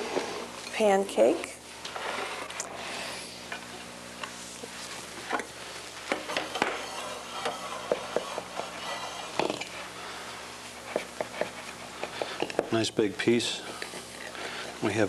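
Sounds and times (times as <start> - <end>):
knife scraping glass plate: 6.3 - 9.8.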